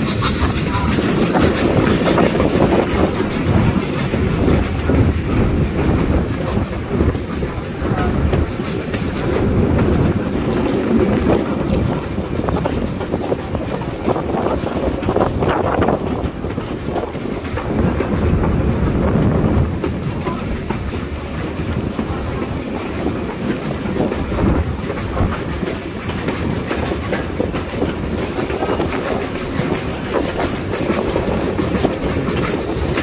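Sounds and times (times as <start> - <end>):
train wheels clattering on rails: 0.0 - 33.0.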